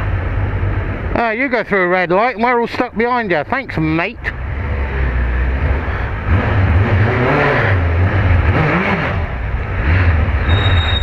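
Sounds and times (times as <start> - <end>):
heavy low rumble: 0.0 - 11.0
car engines pulling away: 4.2 - 11.0.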